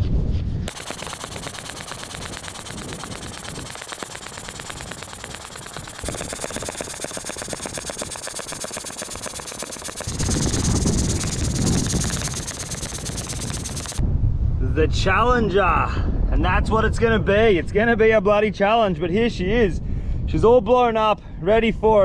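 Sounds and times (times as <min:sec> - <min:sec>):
pump inflating boat rattle: 0:00.7 - 0:14.0.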